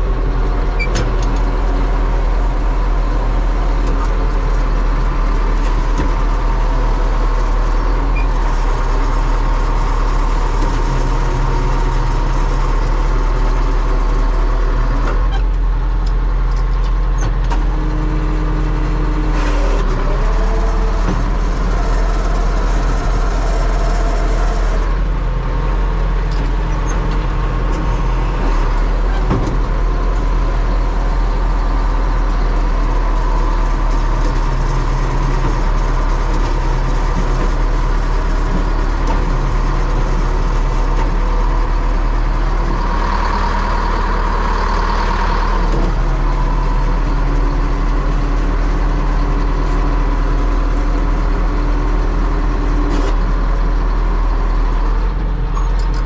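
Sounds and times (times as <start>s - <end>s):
tractor diesel engine under load: 0.0s - 56.0s.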